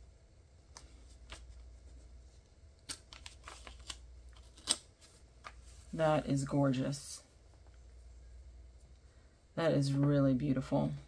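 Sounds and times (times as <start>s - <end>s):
tape and paper rustling: 0.7s - 6.0s.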